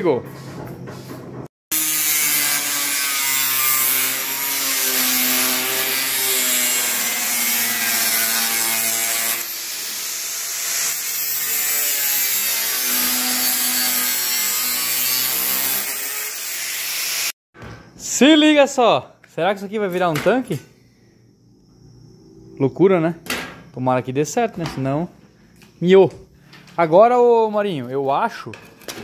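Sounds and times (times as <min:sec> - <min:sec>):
angle grinder cutting sheet metal: 0:01.7 - 0:17.4.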